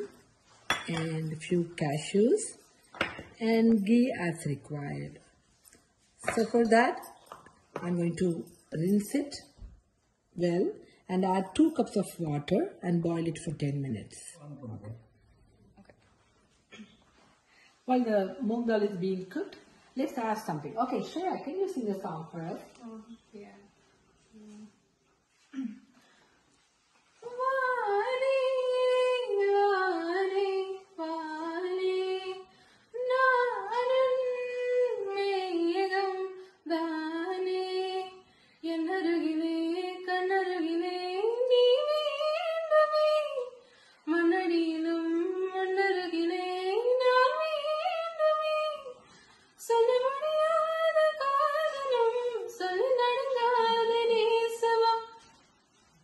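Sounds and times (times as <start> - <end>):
woman singing unaccompanied: 27.2 - 49.0, 49.6 - 55.2.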